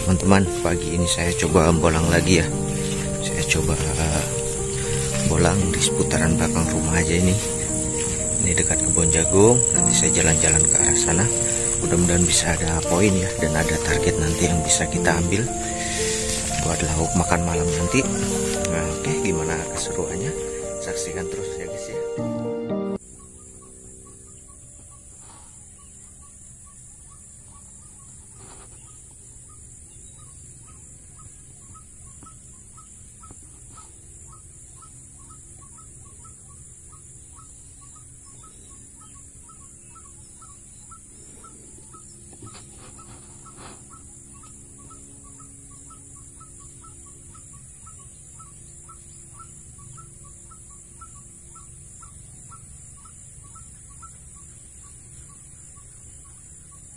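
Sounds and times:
faint low calls: 0:00.0 - 0:23.0
high insect drone: 0:00.0 - 0:56.9.

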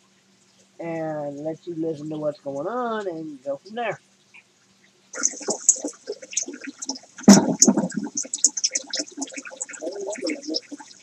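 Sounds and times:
fish tank water bubbling: 0:05.1 - 0:11.0.

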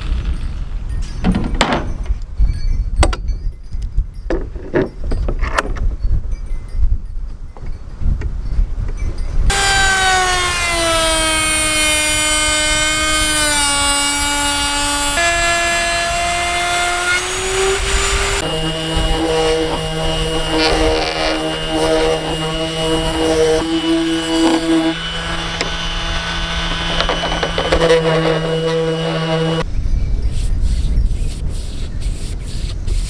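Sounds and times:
electric router whining: 0:09.5 - 0:29.6
sander humming: 0:09.5 - 0:29.6.

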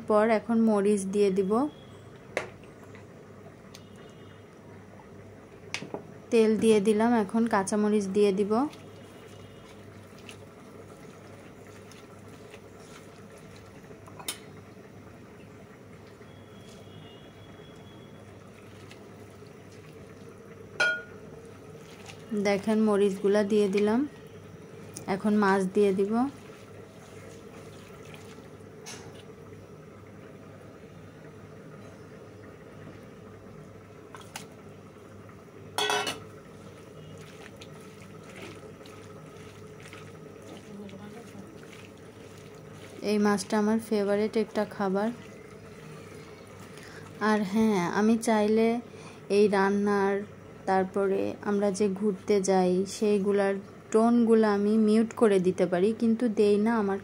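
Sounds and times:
hand mixing onions in a pan: 0:06.3 - 0:29.9, 0:34.0 - 0:57.0
sharp clink against pan: 0:20.8 - 0:21.2, 0:35.8 - 0:36.2.

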